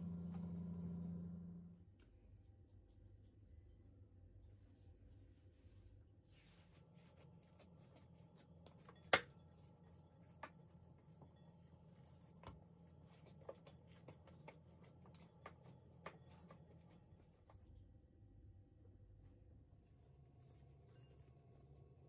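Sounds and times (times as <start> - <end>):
hands kneading dough: 2.7 - 22.0.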